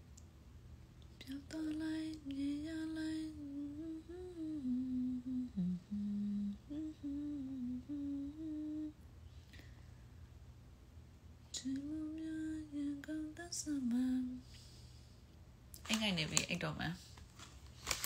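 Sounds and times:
woman humming a slow melody: 0:01.2 - 0:09.0, 0:11.5 - 0:14.5.

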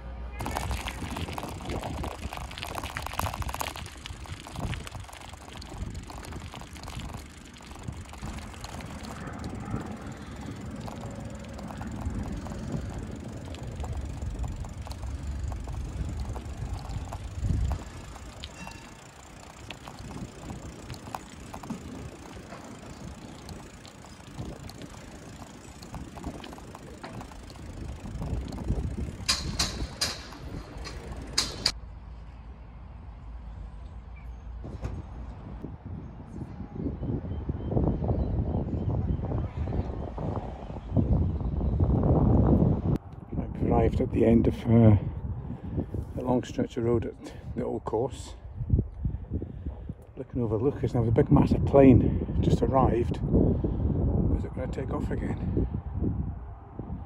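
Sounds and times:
bicycle tyre noise on tarmac: 0:00.3 - 0:32.2, 0:47.3 - 0:57.0
bicycle rattling: 0:00.4 - 0:31.8
wind rumbling on microphone: 0:00.4 - 0:31.8, 0:34.6 - 0:57.0
sharp mechanical clicks: 0:04.2 - 0:31.8.

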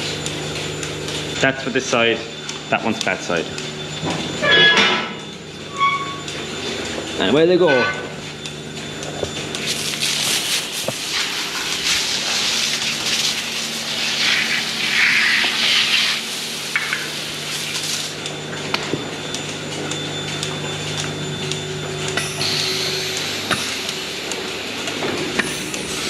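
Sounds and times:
milking machine humming: 0:00.0 - 0:26.0
hose spraying onto concrete: 0:09.6 - 0:18.2.

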